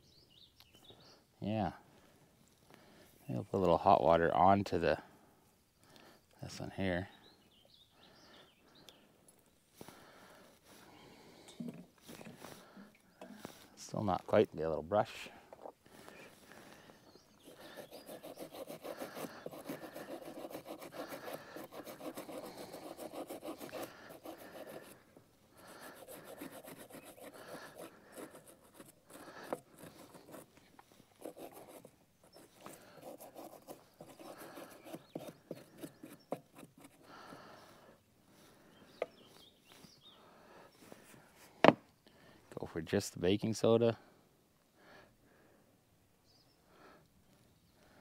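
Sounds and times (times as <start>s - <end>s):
hand brush scrubbing metal: 17.4s - 25.0s, 25.6s - 30.5s, 31.1s - 37.0s.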